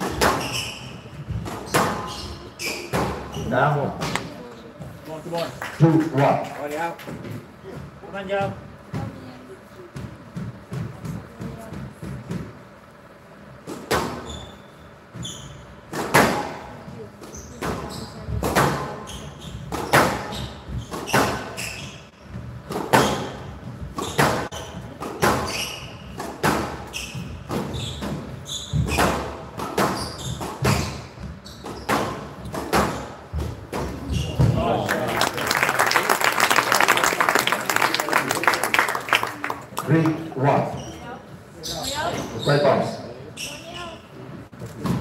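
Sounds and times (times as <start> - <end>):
squash ball hitting rackets and walls: 0.0 - 4.4, 13.6 - 14.5, 15.1 - 34.7
shoe squeaks on court floor: 0.1 - 3.7, 14.1 - 15.8, 17.3 - 22.2, 24.0 - 26.2, 26.8 - 32.2, 34.0 - 34.6, 40.6 - 44.1.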